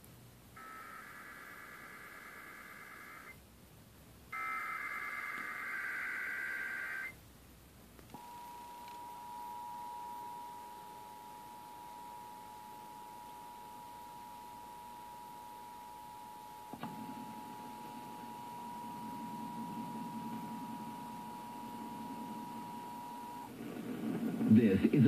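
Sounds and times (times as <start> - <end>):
data bursts: 0.6 - 3.4, 4.4 - 7.2.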